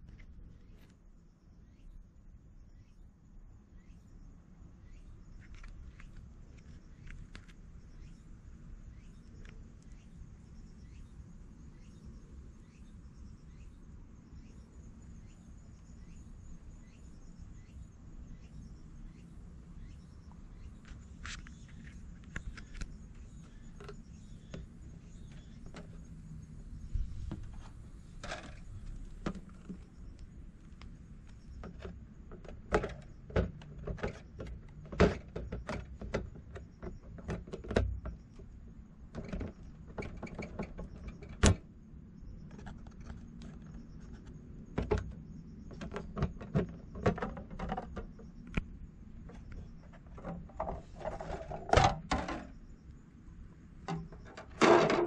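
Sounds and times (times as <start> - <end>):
hands handling plastic tank: 49.3 - 52.6, 53.8 - 55.0.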